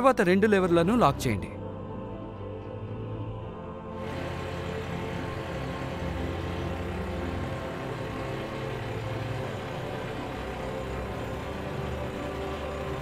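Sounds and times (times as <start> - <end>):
tractor diesel engine under load: 4.0 - 13.0.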